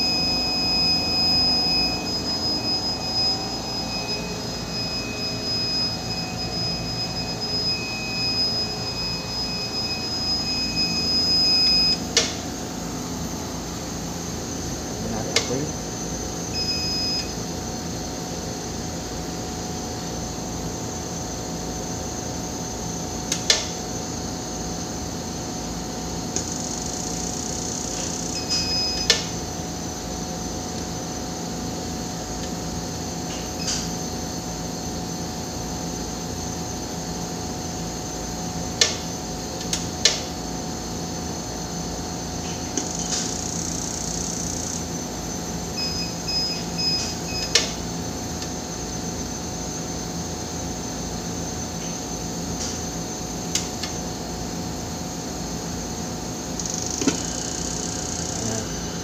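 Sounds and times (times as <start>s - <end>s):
equipment hum and hiss: 0.0s - 59.0s.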